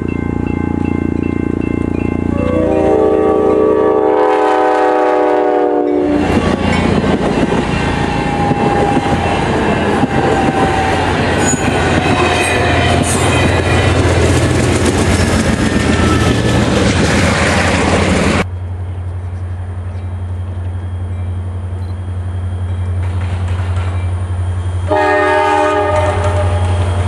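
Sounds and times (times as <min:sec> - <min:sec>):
train rumbling on rails: 0:00.0 - 0:27.0
locomotive air horn chord: 0:02.3 - 0:14.0, 0:24.8 - 0:27.0.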